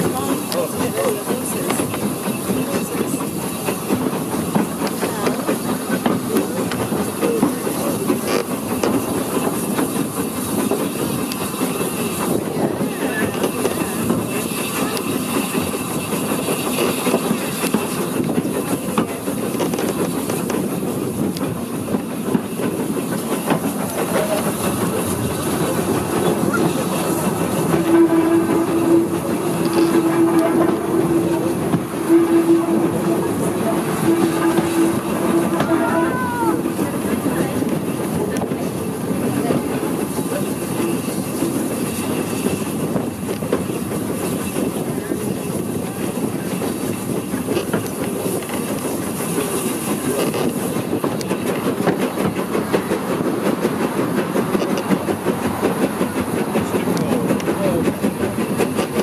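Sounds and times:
steam hissing: 0.0 - 59.0.

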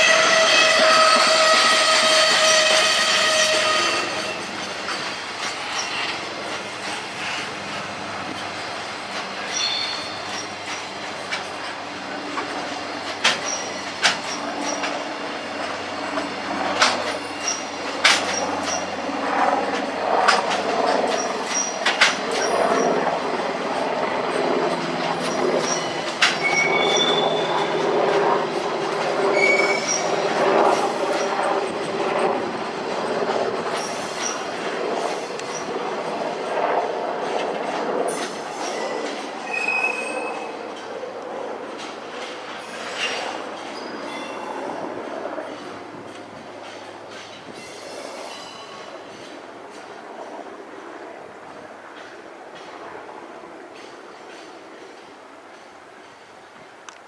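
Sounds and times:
high wheel squeals: 0.0 - 4.6, 9.4 - 10.7, 13.4 - 15.0, 25.2 - 27.8, 29.4 - 30.2, 38.6 - 40.6
train wheels clattering over rail joints: 0.2 - 18.9, 19.7 - 23.0, 24.3 - 27.1, 45.4 - 50.0.

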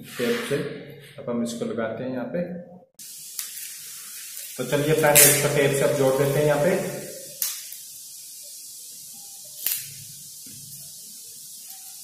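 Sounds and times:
faint steady hiss: 3.0 - 12.0
adhesive tape tearing off roll: 3.3 - 6.4, 7.3 - 7.9, 9.6 - 10.6.

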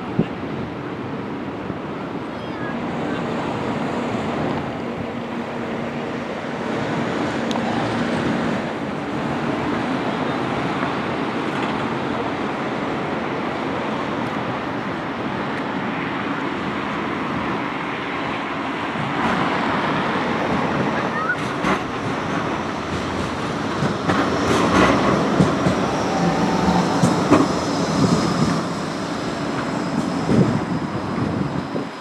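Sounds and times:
road traffic noise: 0.0 - 32.0
tram approaching on track: 0.0 - 32.0
wind on microphone: 19.0 - 32.0.

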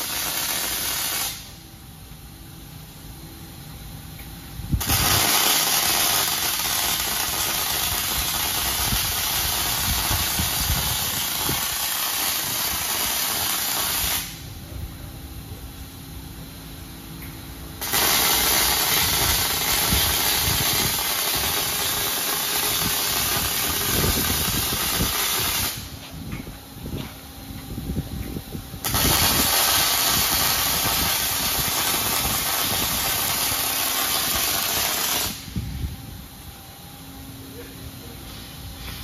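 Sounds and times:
welding arc sizzling: 0.0 - 2.0, 4.2 - 14.6, 17.2 - 27.2, 28.3 - 35.6.

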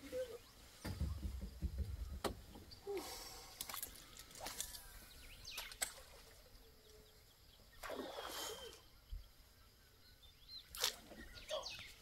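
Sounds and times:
faint bird calls: 0.0 - 12.0.

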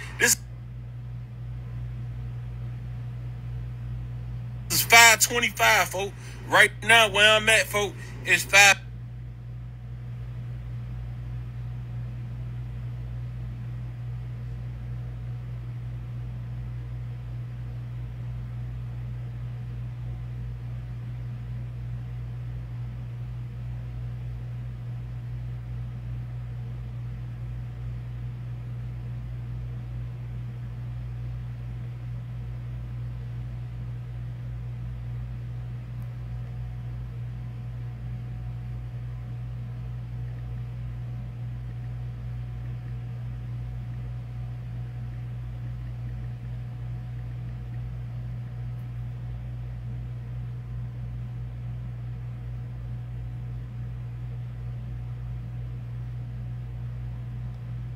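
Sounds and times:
steady low hum: 0.0 - 57.9.

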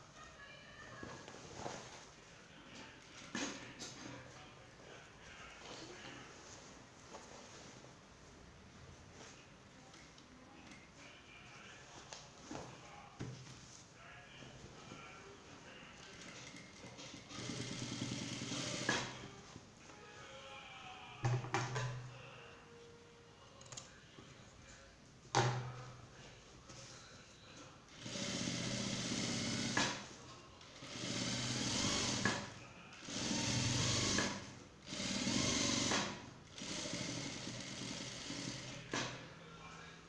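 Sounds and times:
sewing machine stitching: 16.1 - 19.3, 27.9 - 30.1, 30.8 - 39.1.

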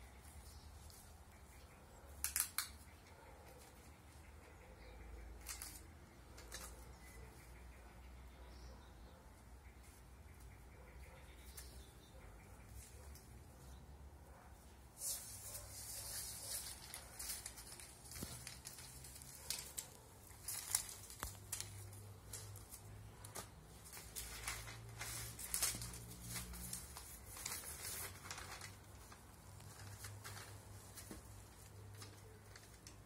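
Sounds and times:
newspaper rustling and crinkling: 5.4 - 7.2, 15.0 - 33.0.

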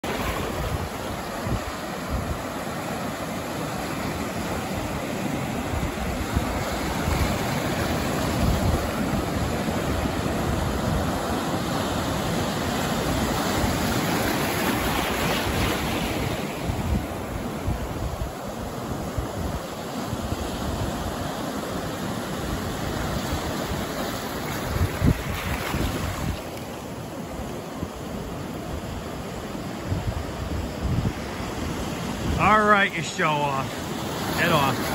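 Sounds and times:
ocean surf breaking: 0.0 - 34.9
wind buffeting microphone: 22.5 - 26.5, 29.8 - 32.4.

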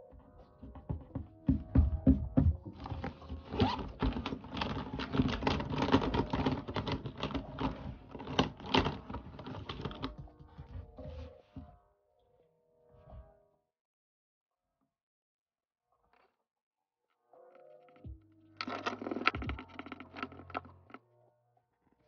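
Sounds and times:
pens clattering in pencil case: 2.8 - 10.2, 18.6 - 21.0.

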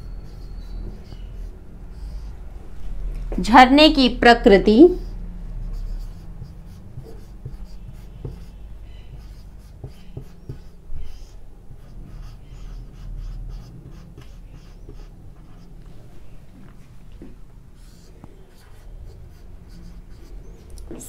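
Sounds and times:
marker squeaking on whiteboard: 0.0 - 2.4, 4.9 - 15.8, 17.8 - 21.0
marker tip tapping board: 7.0 - 10.7.

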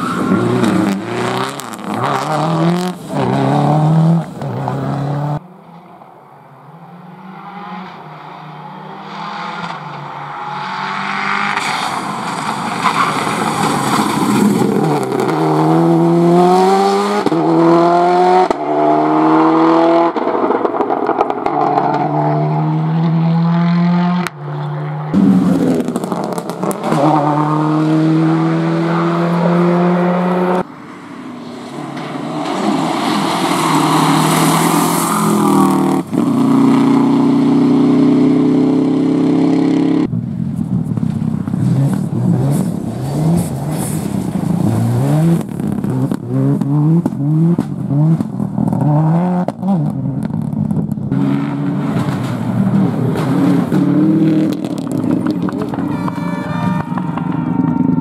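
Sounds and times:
rally car engines revving: 0.0 - 5.4, 6.6 - 58.0.

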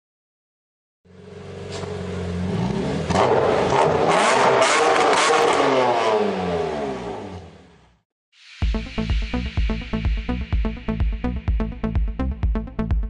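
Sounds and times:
car engine revving hard: 1.6 - 7.7.

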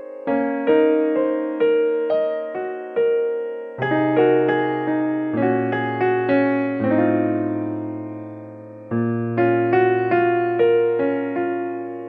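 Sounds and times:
slow piano-like keyboard melody: 0.0 - 12.0.

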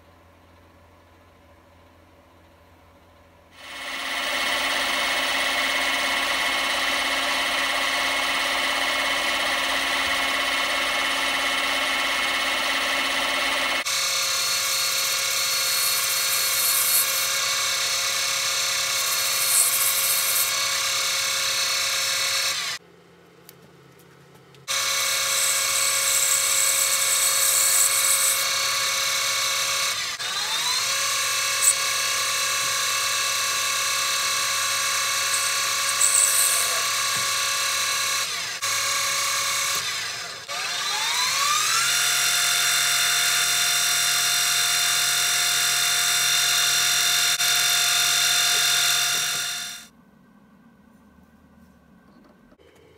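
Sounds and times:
lathe motor whine: 3.6 - 22.8, 24.7 - 49.9.

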